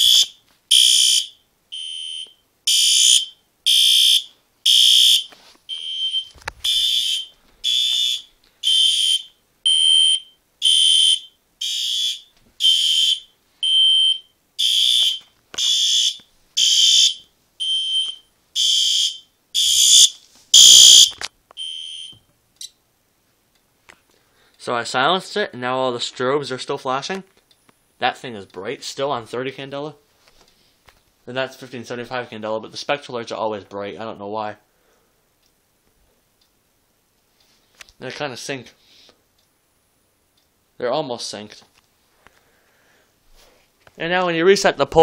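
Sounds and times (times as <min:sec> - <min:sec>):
fire alarm horns pulsing: 0:00.0 - 0:22.1.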